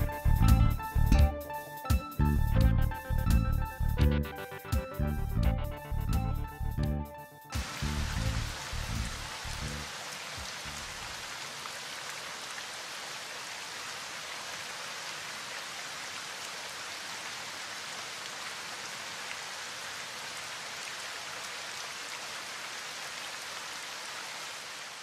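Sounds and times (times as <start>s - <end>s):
steady rain: 7.5s - 25.0s.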